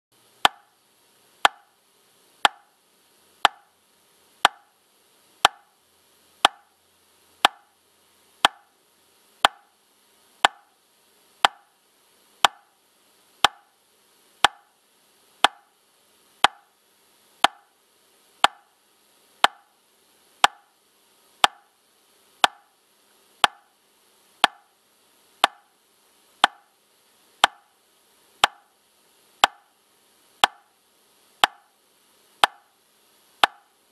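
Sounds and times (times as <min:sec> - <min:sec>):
metronome clicking: 0:01.4 - 0:01.7, 0:02.4 - 0:02.7, 0:03.4 - 0:03.7, 0:04.4 - 0:04.7, 0:06.4 - 0:06.7, 0:07.4 - 0:07.7, 0:08.4 - 0:08.7, 0:09.4 - 0:09.7, 0:10.4 - 0:10.7, 0:11.4 - 0:11.7, 0:12.4 - 0:12.7, 0:14.4 - 0:14.7, 0:16.4 - 0:16.7, 0:17.4 - 0:17.7, 0:18.4 - 0:18.7, 0:19.4 - 0:19.7, 0:22.4 - 0:22.7, 0:23.4 - 0:23.7, 0:24.4 - 0:24.7, 0:25.4 - 0:25.7, 0:26.4 - 0:26.7, 0:27.4 - 0:27.7, 0:28.4 - 0:28.7, 0:29.4 - 0:29.7, 0:30.4 - 0:30.7, 0:31.4 - 0:31.7, 0:32.4 - 0:32.7, 0:33.4 - 0:33.7.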